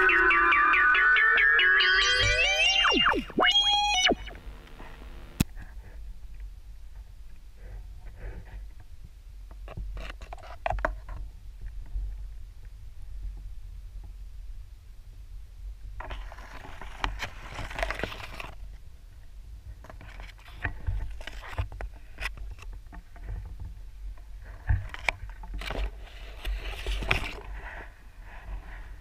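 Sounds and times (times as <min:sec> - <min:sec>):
crackling and scraping underwater: 0:16.0 - 0:18.7, 0:19.8 - 0:29.0.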